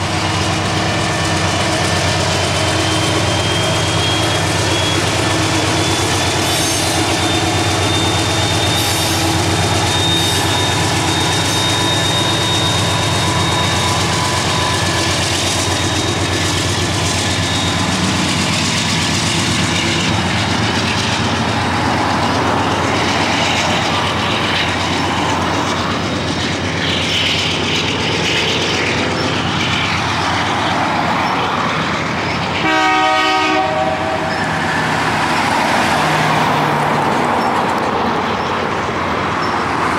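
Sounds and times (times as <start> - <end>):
diesel locomotive drone: 0.0 - 39.9
train wheels clacking over rail joints: 0.0 - 39.9
train horn: 32.6 - 34.4.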